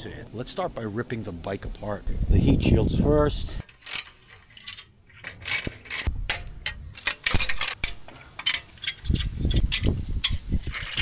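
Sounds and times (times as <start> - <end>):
metallic clicks of tools: 3.6 - 11.0.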